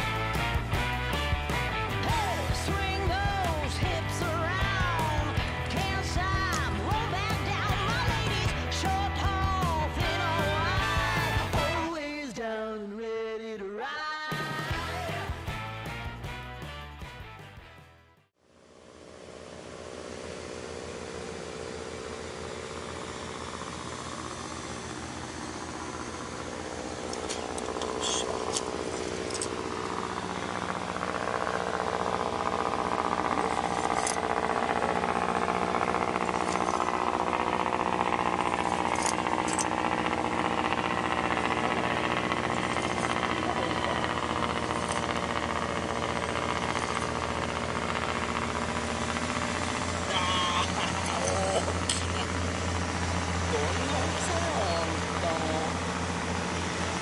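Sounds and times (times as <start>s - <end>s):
boat engine running: 0.0s - 12.3s, 14.3s - 57.0s
sharp clicks: 27.1s - 29.6s.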